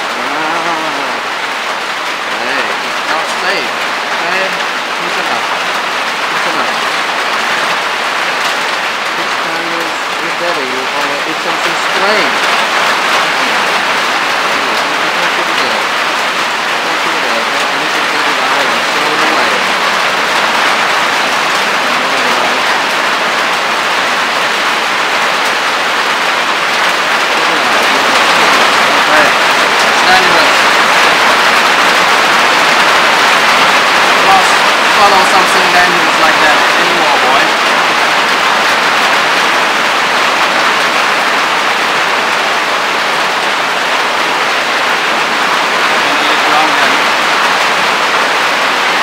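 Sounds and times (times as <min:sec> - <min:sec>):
heavy rain falling: 0:00.0 - 0:49.0.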